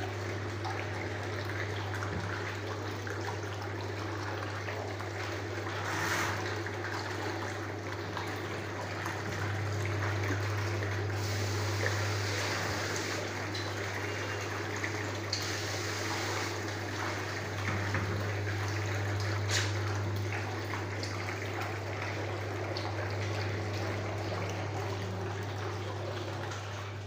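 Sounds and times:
water spraying into basin: 0:11.1 - 0:13.5, 0:15.2 - 0:17.5.

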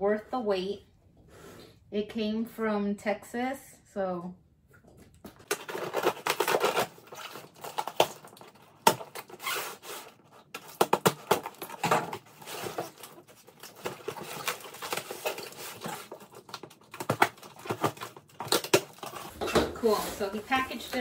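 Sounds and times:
packing tape tearing: 0:05.4 - 0:19.4.

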